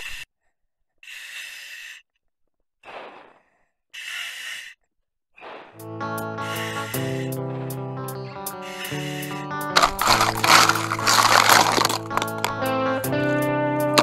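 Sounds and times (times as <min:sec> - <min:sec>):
diver breathing through regulator: 0:01.0 - 0:02.1, 0:02.9 - 0:04.8, 0:06.4 - 0:07.8, 0:08.4 - 0:12.2
music: 0:05.8 - 0:14.0.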